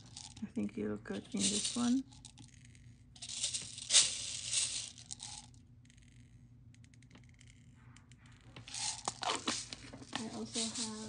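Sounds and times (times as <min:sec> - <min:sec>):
beads clicking as they settle: 0:00.0 - 0:00.4, 0:01.2 - 0:06.2, 0:08.6 - 0:11.0
beads rattling in a jar: 0:00.0 - 0:05.6, 0:08.6 - 0:11.0.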